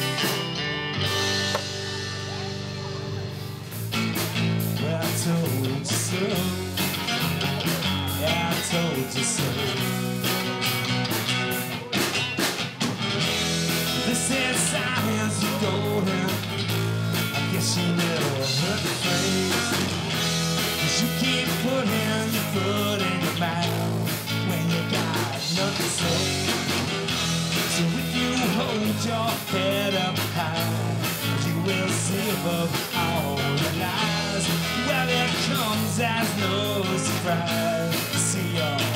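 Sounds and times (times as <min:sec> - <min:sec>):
drum kit: 0:00.0 - 0:38.9
electric bass: 0:00.0 - 0:38.9
electric guitar: 0:00.0 - 0:38.9
live rock band: 0:00.0 - 0:38.9.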